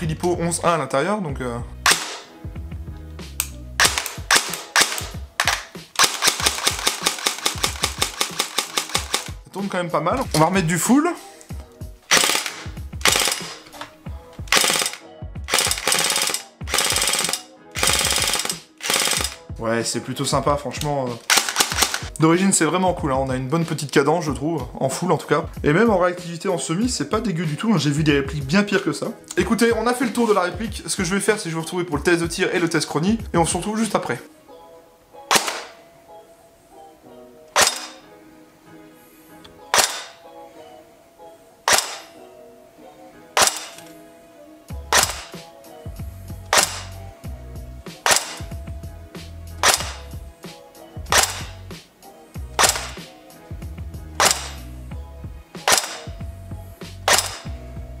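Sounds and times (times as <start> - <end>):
background music: 0.0 - 58.0
airsoft gun shots: 1.9 - 2.3, 3.8 - 9.3, 12.1 - 13.7, 35.3 - 35.8, 37.6 - 38.0, 39.7 - 40.2, 41.7 - 42.1, 43.4 - 43.9, 44.9 - 45.4, 46.5 - 47.0, 48.0 - 48.6, 49.6 - 50.2, 51.1 - 51.6, 52.6 - 53.1, 54.2 - 54.6, 55.7 - 56.2, 57.0 - 57.6
airsoft gun gearbox cycling: 3.4 - 9.4, 12.1 - 13.9, 14.5 - 19.4, 21.2 - 22.1, 49.6 - 50.1, 52.6 - 53.0.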